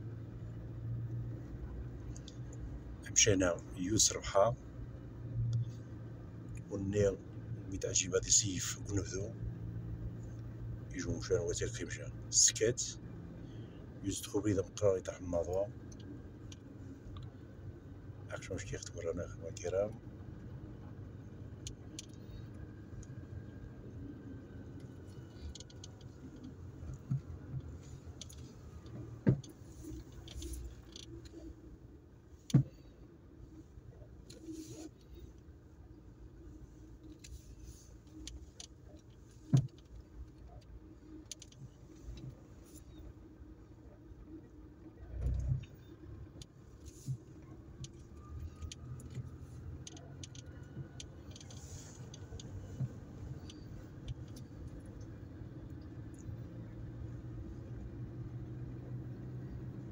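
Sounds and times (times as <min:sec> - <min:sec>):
road and engine rumble: 0:00.0 - 0:59.9
small clicks and rattles: 0:15.5 - 0:31.6, 0:36.3 - 0:43.1, 0:44.4 - 0:59.6.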